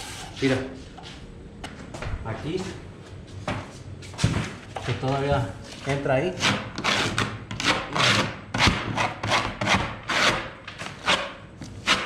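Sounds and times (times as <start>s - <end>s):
taping knife scraping joint compound: 5.7s - 12.0s.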